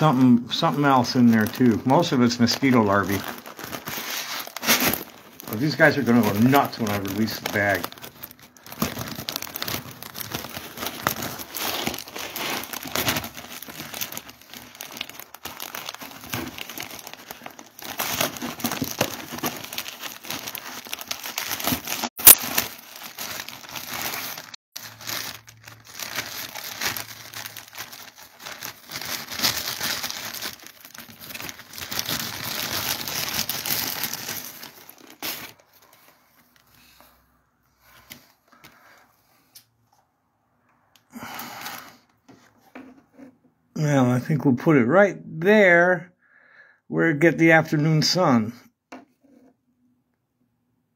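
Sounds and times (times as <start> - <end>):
plastic bag crinkling: 0.0 - 37.1.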